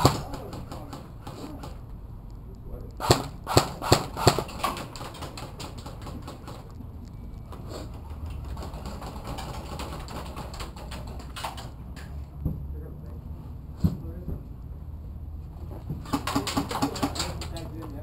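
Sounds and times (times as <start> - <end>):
airsoft gun shots: 0.0 - 1.7, 3.0 - 5.9
steady low rumble: 0.0 - 5.0, 6.2 - 8.8.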